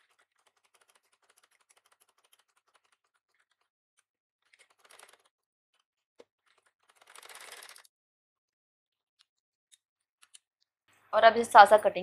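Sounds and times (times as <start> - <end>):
sewing machine stitching: 4.4 - 5.3, 6.4 - 7.9.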